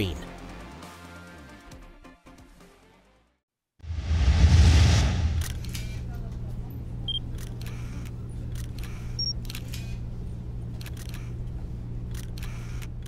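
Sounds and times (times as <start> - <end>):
low motor hum: 4.9 - 13.0.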